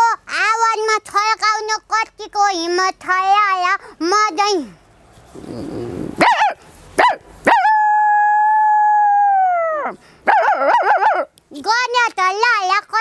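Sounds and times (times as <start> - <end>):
woman growling: 5.4 - 6.2.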